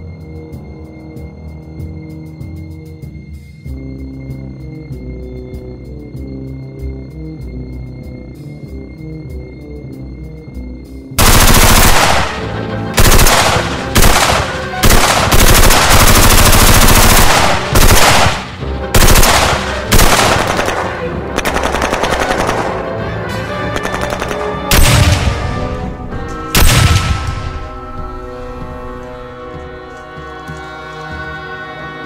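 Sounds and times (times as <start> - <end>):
automatic gunfire bursts: 11.2 - 22.7
heavy gunshots with low boom: 11.2 - 23.0, 23.8 - 25.9, 26.5 - 27.8.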